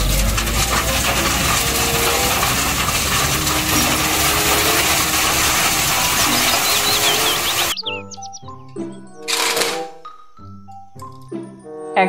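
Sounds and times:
gravel pouring from truck: 0.0s - 8.4s
low rumble: 0.0s - 8.4s.

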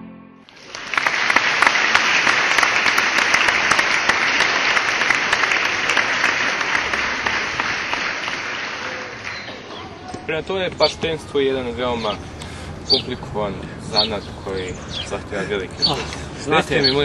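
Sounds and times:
crowd applauding: 0.5s - 9.7s.

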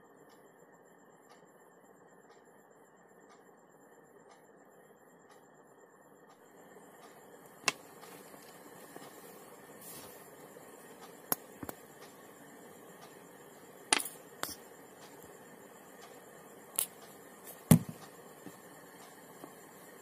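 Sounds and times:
faint steady hiss: 0.0s - 20.0s
wood blocks knocking on table: 17.7s - 18.0s.

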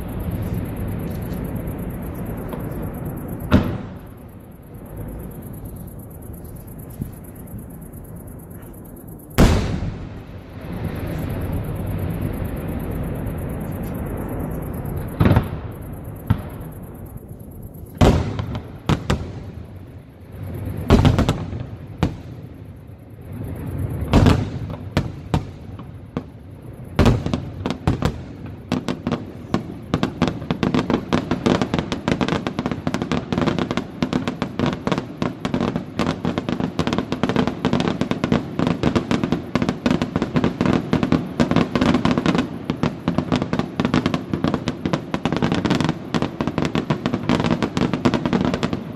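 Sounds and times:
fireworks booming: 0.0s - 22.5s, 23.3s - 48.9s
fireworks crackling: 8.4s - 17.3s, 23.2s - 48.9s.

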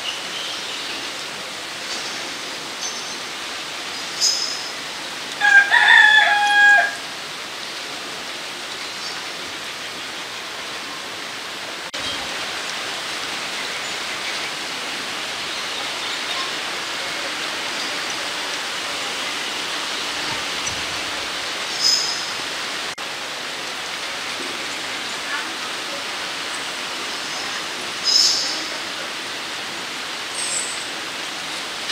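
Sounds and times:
rushing outdoor noise: 0.0s - 31.9s
rooster crowing: 5.4s - 7.2s.

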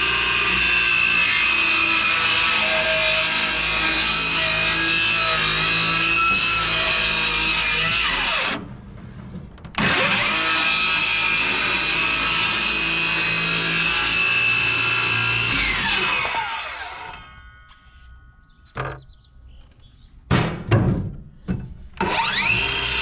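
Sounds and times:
electric saw cutting wood: 0.0s - 8.6s, 9.8s - 17.4s, 22.0s - 23.0s.

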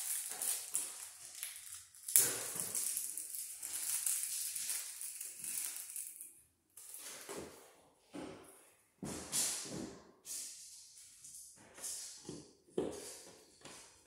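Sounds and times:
crackly rustling of small parts: 0.0s - 7.3s.

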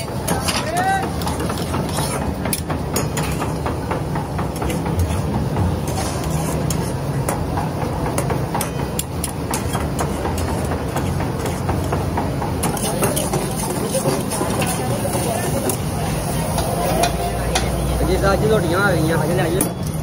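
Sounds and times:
metal utensils scraping woks: 0.0s - 3.6s, 5.0s - 7.2s, 12.6s - 20.0s.

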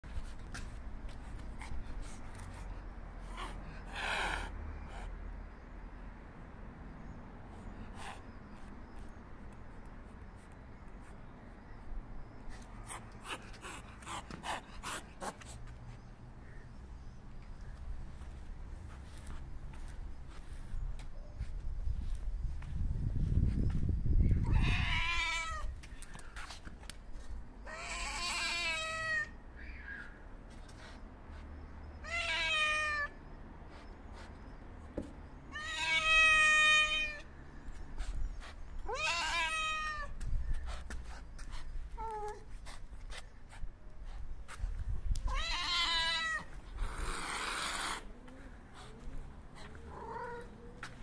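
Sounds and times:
cat meowing: 24.4s - 25.7s, 27.6s - 29.3s, 32.0s - 33.2s, 35.5s - 37.3s, 38.8s - 40.2s, 45.2s - 46.5s, 49.9s - 50.5s
cat hissing: 45.3s - 49.0s.

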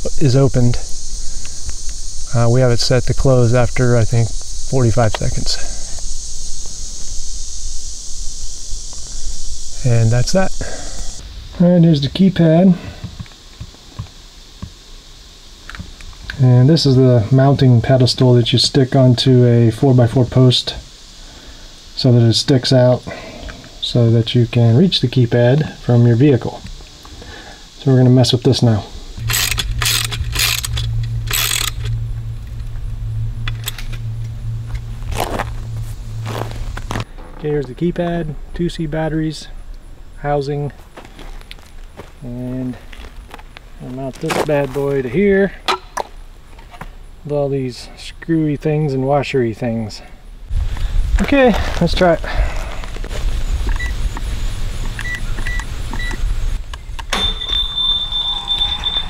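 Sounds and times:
steady low hum: 0.0s - 59.0s
steady high tone: 28.6s - 37.1s, 57.0s - 59.0s
ratchet wrench clicking: 29.2s - 32.0s
keypad beeps: 55.0s - 56.2s, 57.1s - 59.0s.

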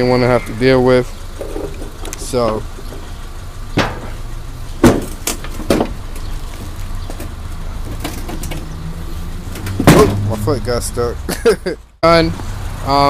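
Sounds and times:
sharp knocks and clunks: 1.4s - 8.8s, 9.5s - 10.4s.

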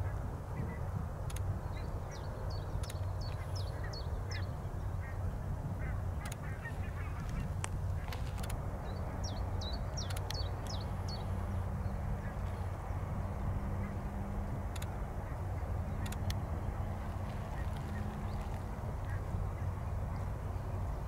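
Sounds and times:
steady low rumble: 0.0s - 21.0s
sharp clicks: 1.3s - 1.5s, 2.8s - 3.4s, 7.6s - 8.6s, 9.9s - 10.8s, 14.7s - 15.0s, 16.0s - 16.4s
birds chirping: 1.6s - 21.0s
low bird calls: 15.2s - 20.8s.

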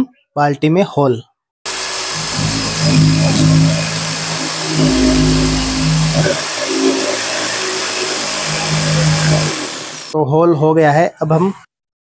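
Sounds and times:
electric drill motor whine: 1.7s - 10.2s.

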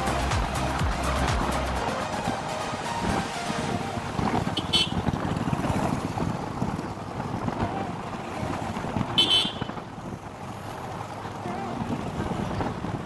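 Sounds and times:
road traffic noise: 0.0s - 13.0s
wind buffeting microphone: 1.7s - 13.0s.

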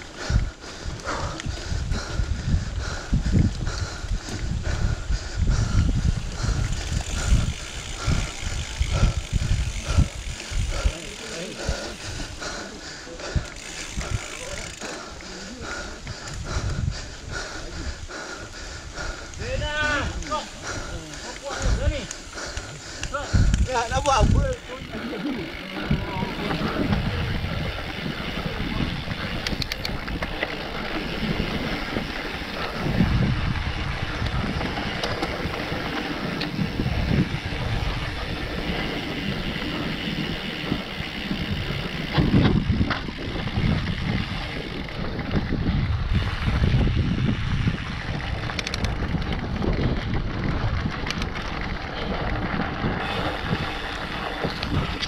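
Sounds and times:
bike rattling over bumps: 0.0s - 55.0s
tyres rolling on dirt trail: 0.0s - 55.0s
wind buffeting microphone: 0.0s - 55.0s.

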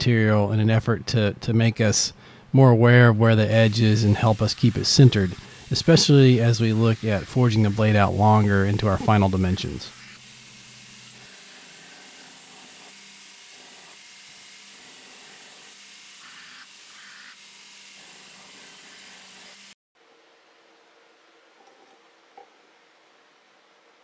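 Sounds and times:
belt grinder grinding steel: 3.5s - 19.8s
motor hum: 3.6s - 19.7s.

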